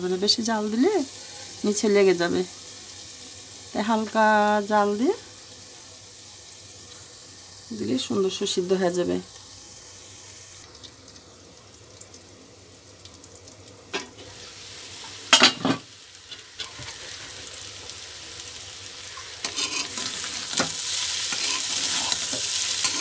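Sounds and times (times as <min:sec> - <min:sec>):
vegetables sizzling in oil: 0:00.0 - 0:23.0
metal spatula scraping: 0:19.1 - 0:23.0.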